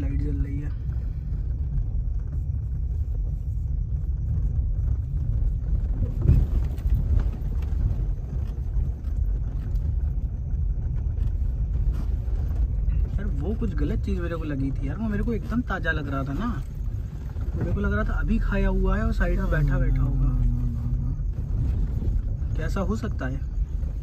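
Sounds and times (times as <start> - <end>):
car engine and tyres rumbling: 0.0 - 24.0.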